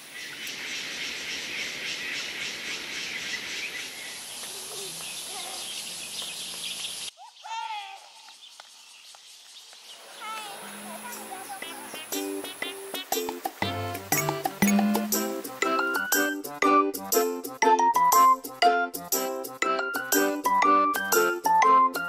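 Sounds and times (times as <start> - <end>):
insects chirring: 0.0 - 7.4, 8.0 - 15.5
high steady tone: 14.1 - 15.4.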